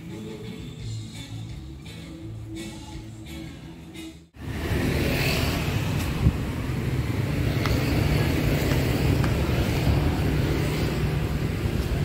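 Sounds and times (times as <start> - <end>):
road traffic rumble: 0.0 - 12.0
wind on microphone: 5.4 - 6.7.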